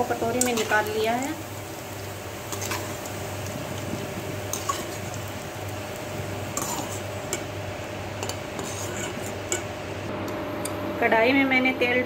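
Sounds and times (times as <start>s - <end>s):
metal spoon scraping a pan: 0.2s - 0.9s, 2.4s - 3.2s, 4.5s - 5.3s, 6.5s - 7.6s, 8.2s - 9.8s.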